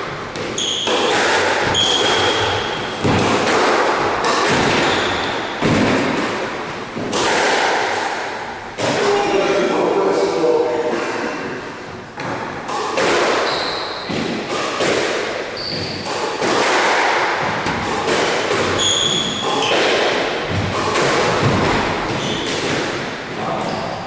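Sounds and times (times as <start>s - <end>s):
squash ball hits echoing: 0.0s - 9.4s, 11.4s - 23.7s
shoes squeaking on wooden floor: 13.4s - 14.2s, 15.6s - 16.0s, 18.7s - 19.7s.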